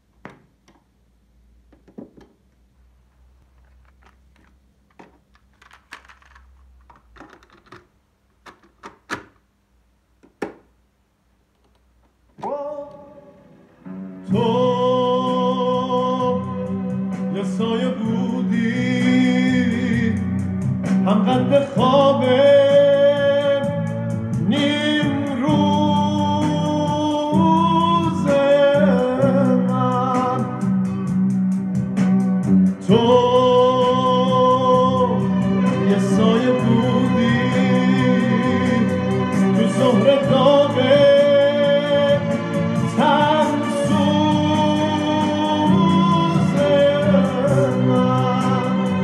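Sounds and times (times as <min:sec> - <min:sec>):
cassette deck clicks and clunks: 0:03.9 - 0:09.4
song with singer from tape: 0:11.6 - 0:49.0.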